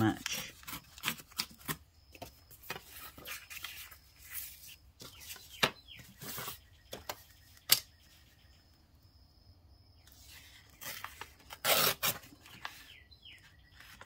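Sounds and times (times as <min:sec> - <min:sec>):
paper rustling and sliding: 0:00.3 - 0:07.1, 0:10.1 - 0:14.0.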